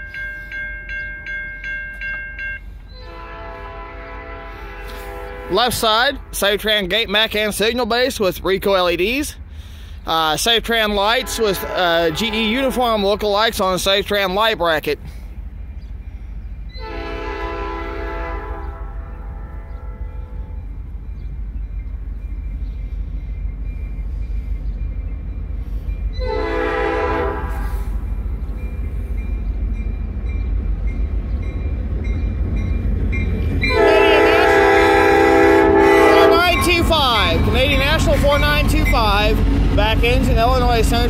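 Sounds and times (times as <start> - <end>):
locomotive engine rumble: 0.0 - 41.0
locomotive horn blasts: 3.0 - 6.6, 11.0 - 13.5, 16.8 - 20.6, 26.2 - 27.9, 33.6 - 39.1.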